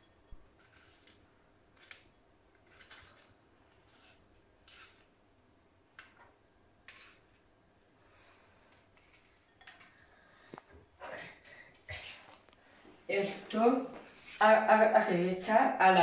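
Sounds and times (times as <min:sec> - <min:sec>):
utensil scraping mesh sieve: 0:00.6 - 0:05.1, 0:06.9 - 0:07.4.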